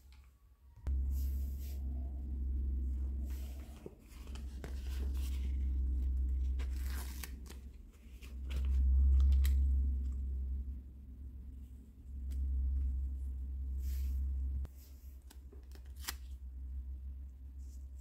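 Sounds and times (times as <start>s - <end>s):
low hum: 0.0s - 15.0s
paper sheet crinkling: 3.3s - 9.9s.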